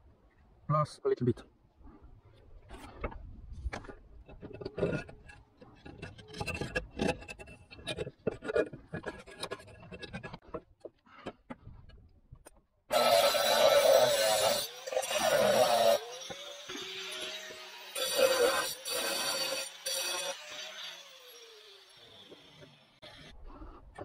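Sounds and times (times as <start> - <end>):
pliers scraping roof tile: 3.7 - 11.7.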